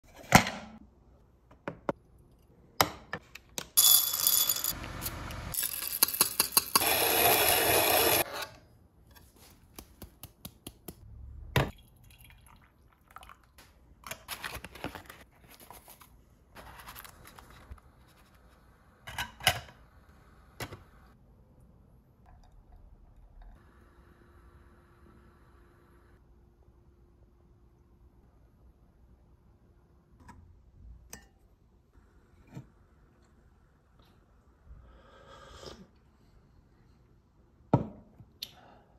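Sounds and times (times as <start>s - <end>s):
water pouring into glass mug: 11.8s - 13.5s.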